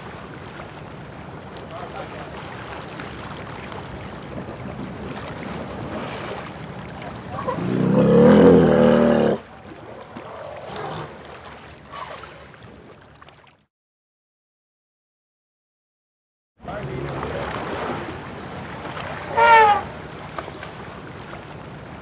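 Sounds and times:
water sloshing and splashing: 0:00.0 - 0:13.7, 0:16.6 - 0:22.0
elephant wavering call: 0:19.3 - 0:19.9.

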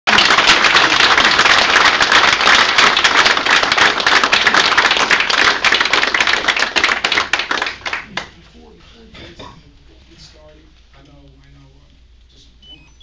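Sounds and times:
room full of people applauding: 0:00.1 - 0:08.4.

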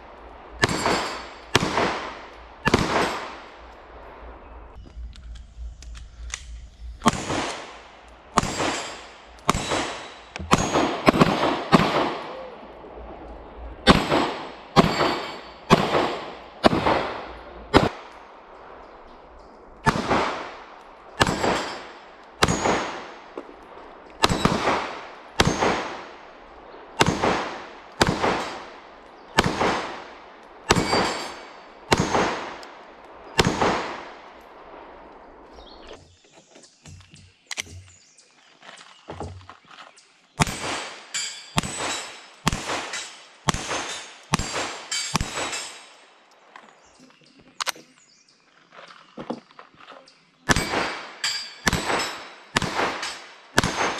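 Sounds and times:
pistol shots with echo: 0:00.4 - 0:03.6, 0:07.0 - 0:12.5, 0:13.8 - 0:18.2, 0:19.8 - 0:23.4, 0:24.2 - 0:26.4, 0:27.0 - 0:35.0, 0:40.4 - 0:46.1, 0:50.5 - 0:53.9.

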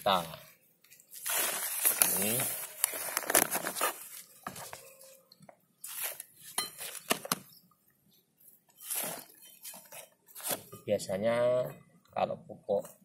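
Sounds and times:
soil and leaves rustling: 0:00.0 - 0:05.2, 0:05.8 - 0:07.4, 0:08.1 - 0:10.7.

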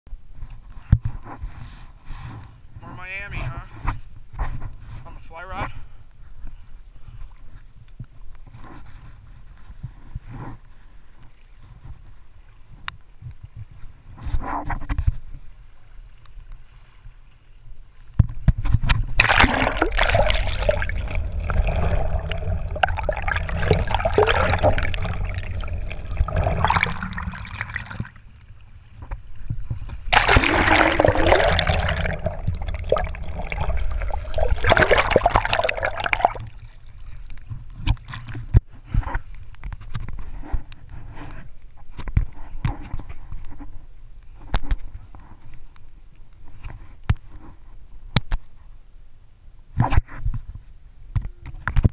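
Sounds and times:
stream water gurgling and splashing: 0:19.2 - 0:28.4, 0:30.1 - 0:37.4.

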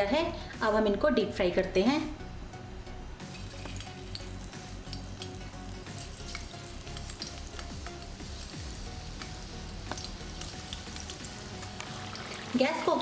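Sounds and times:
battered food deep-frying in oil: 0:03.2 - 0:13.0
pops and crackles in oil: 0:03.3 - 0:08.1, 0:09.2 - 0:12.0.

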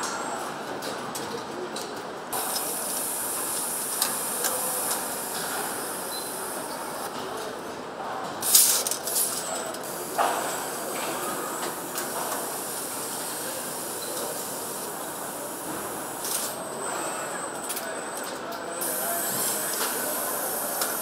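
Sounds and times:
assembly line machinery din: 0:08.4 - 0:21.0
air hiss: 0:18.8 - 0:21.0.

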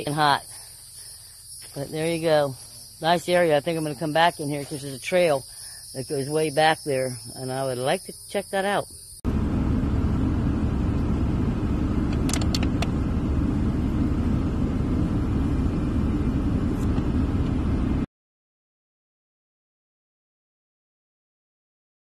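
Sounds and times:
low rumble inside car: 0:09.2 - 0:18.1.

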